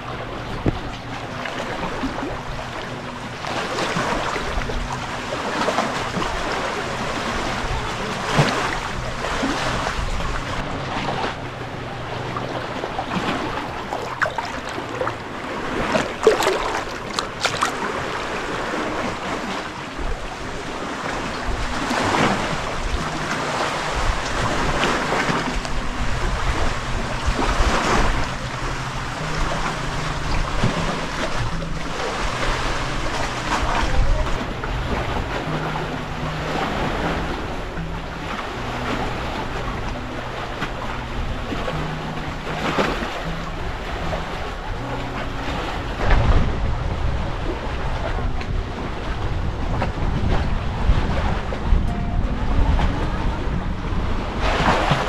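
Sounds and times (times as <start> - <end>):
wind rumbling on microphone: 0.0 - 55.0
seawater splashing from wading: 13.0 - 19.8.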